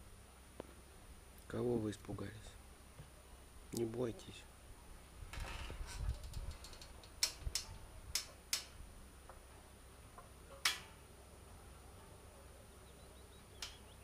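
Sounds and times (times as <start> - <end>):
rabbits making sharp clicks: 6.0 - 9.4, 13.4 - 14.0.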